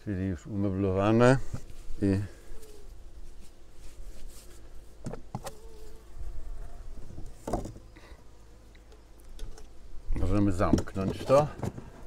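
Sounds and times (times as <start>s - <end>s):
bee flying close humming: 0.0s - 12.0s
honeybees buzzing: 0.0s - 12.0s
soft knocks on hive: 5.0s - 5.6s, 7.1s - 7.9s, 10.6s - 11.9s.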